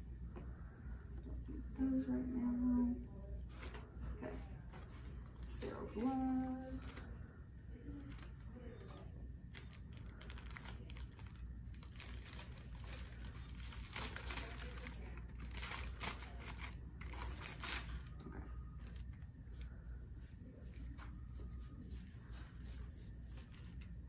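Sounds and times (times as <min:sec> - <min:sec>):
packaging crinkling and rustling: 0:08.0 - 0:19.7.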